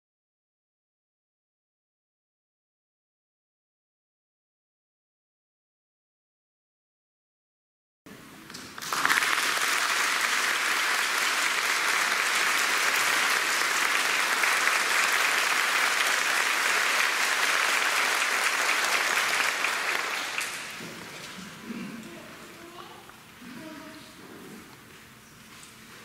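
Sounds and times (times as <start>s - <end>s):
audience applause: 8.7s - 21.4s.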